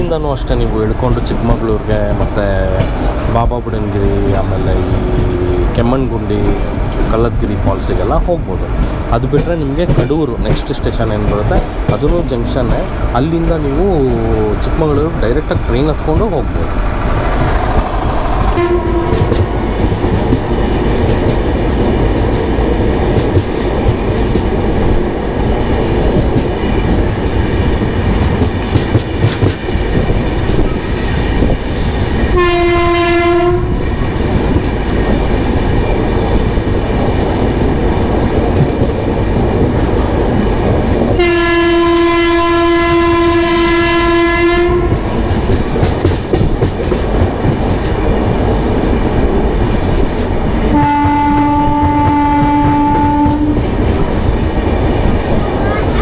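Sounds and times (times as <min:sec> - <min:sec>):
train rumble and clickety-clack: 0:00.0 - 0:56.0
train horn blasts: 0:18.6 - 0:19.4, 0:32.3 - 0:33.8, 0:41.2 - 0:45.0, 0:50.7 - 0:53.6.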